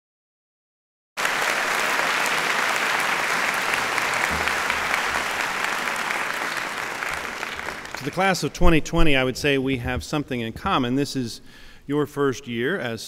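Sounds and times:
audience applause: 1.2s - 8.6s.

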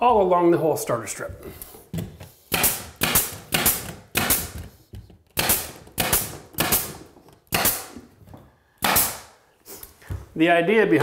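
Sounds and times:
pneumatic nailer firing: 2.5s - 4.7s, 5.4s - 8.0s, 8.8s - 9.4s.

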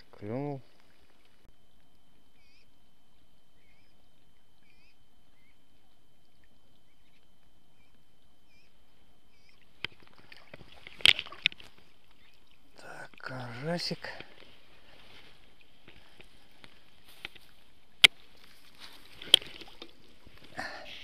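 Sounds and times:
faint chirps: 0.3s - 9.9s
rustling: 14.0s - 20.6s.

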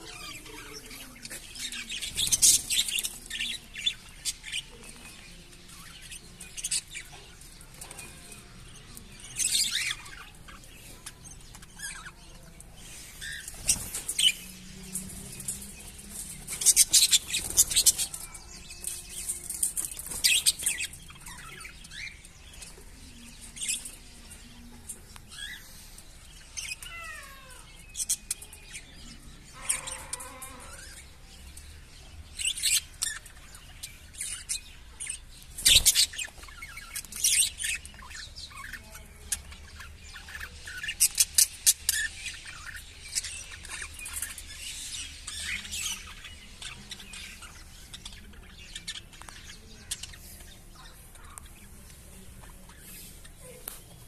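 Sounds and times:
parakeets chirping: 0.0s - 24.7s, 25.3s - 31.4s, 32.2s - 54.0s.

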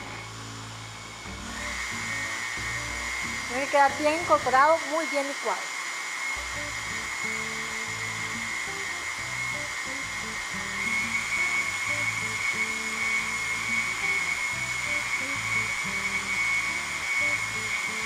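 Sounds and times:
soft background music: 0.0s - 4.8s
blender motor running: 0.0s - 18.0s.

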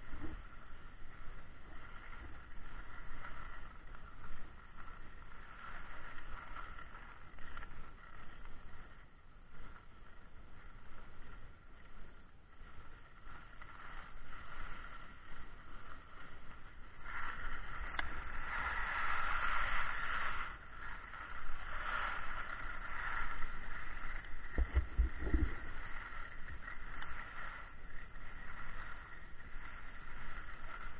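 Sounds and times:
skis scraping over snow: 0.0s - 30.9s
wind buffeting microphone: 12.4s - 30.9s.

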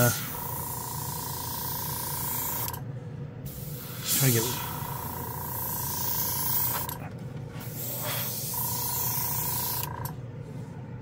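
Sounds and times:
airbrush hissing air: 0.0s - 2.7s, 3.4s - 6.9s, 7.6s - 9.9s
thin steady whine: 0.0s - 11.0s.

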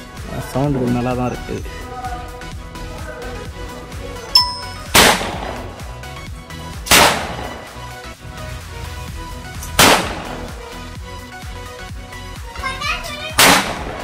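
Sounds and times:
background music: 0.0s - 14.0s
short ding: 4.3s - 4.9s
sound cracker bang: 4.9s - 5.5s, 9.8s - 10.2s.

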